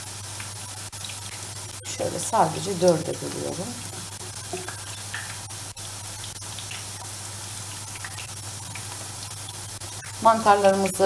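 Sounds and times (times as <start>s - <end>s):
potatoes sizzling in hot oil: 0.0s - 11.0s.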